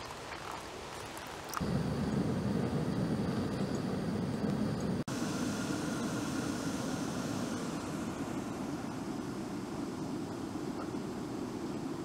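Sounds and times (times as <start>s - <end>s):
gas stove burner roar: 1.6s - 12.0s.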